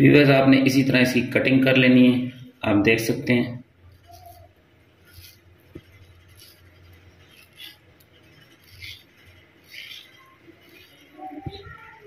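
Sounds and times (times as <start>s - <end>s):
knife scraping fruit: 3.8s - 12.0s.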